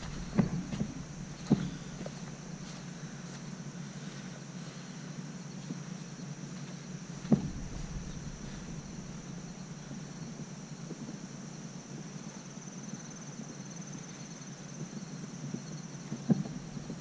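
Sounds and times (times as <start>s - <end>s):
footsteps through grass: 0.0s - 4.2s
insects chirring in grass: 0.0s - 17.0s.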